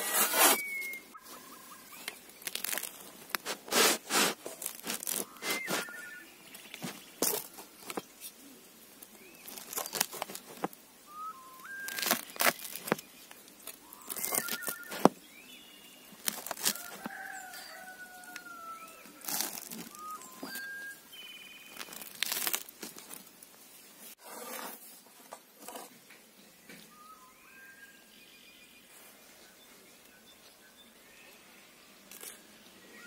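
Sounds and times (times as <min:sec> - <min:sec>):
knife crunching through crust: 0:00.0 - 0:00.7, 0:02.4 - 0:06.0, 0:09.5 - 0:10.7, 0:11.8 - 0:13.0, 0:14.0 - 0:15.1, 0:16.2 - 0:17.1, 0:19.2 - 0:20.7, 0:21.7 - 0:23.2
small birds chirping: 0:00.0 - 0:22.7.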